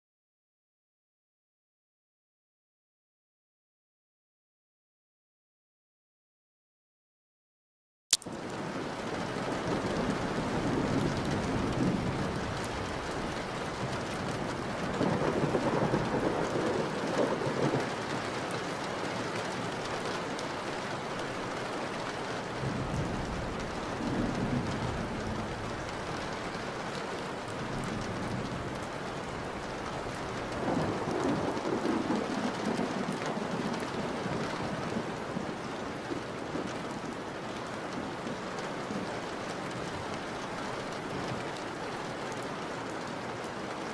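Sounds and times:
heavy rain falling: 8.2 - 43.9
rolling thunder: 9.7 - 18.2, 22.6 - 26.9, 27.5 - 35.5.

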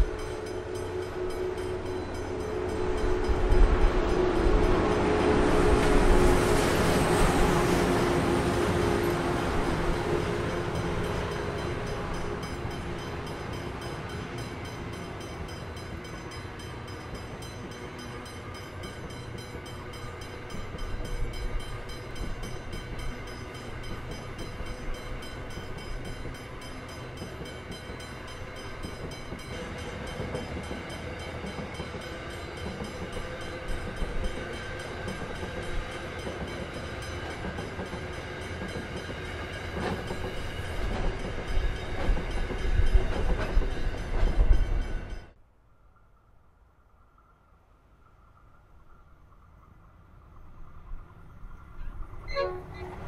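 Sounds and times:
locomotive engine: 0.0 - 44.6
train wagons rumbling on rails: 0.0 - 45.4, 49.4 - 53.0
wheels clattering on track: 32.6 - 44.8.

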